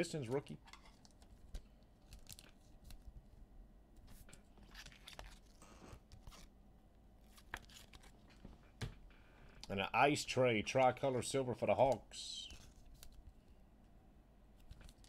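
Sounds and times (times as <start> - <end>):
trading cards and wrappers rustling: 0.1 - 3.4, 4.0 - 6.5, 7.2 - 8.5, 11.7 - 13.6.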